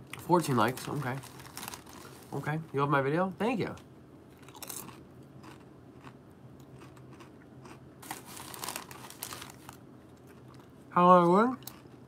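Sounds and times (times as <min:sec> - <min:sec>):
person crunching chips: 0:00.4 - 0:02.4, 0:04.3 - 0:10.8, 0:11.5 - 0:12.0.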